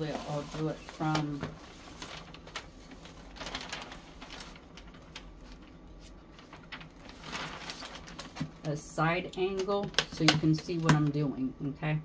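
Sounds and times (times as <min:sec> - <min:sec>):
paper rustling: 0:00.0 - 0:08.8.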